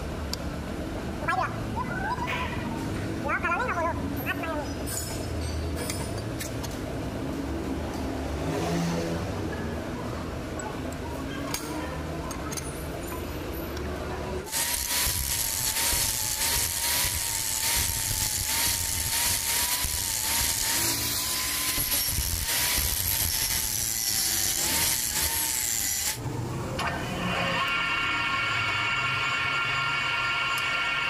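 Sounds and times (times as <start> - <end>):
angle grinder grinding steel: 14.5 - 26.2.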